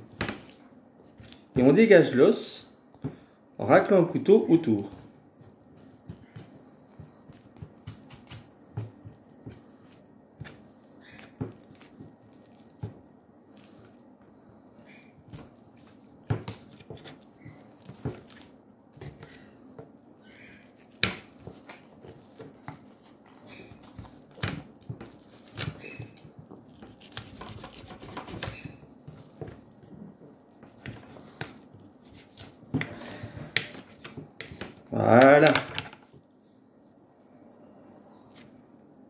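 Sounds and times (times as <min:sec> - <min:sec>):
knife scraping bone: 0:25.0 - 0:29.4.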